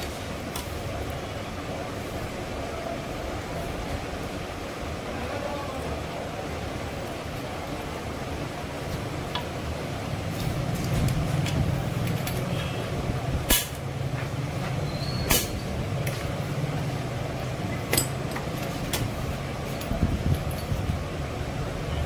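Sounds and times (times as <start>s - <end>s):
hand tools clinking on metal: 17.7s - 20.8s.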